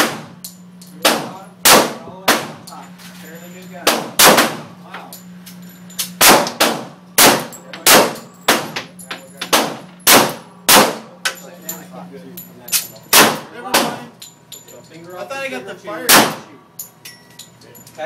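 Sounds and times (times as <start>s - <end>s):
handgun shots indoors: 0.0s - 2.7s, 3.8s - 4.7s, 6.0s - 8.9s, 9.5s - 11.1s, 12.7s - 14.0s, 16.0s - 16.5s.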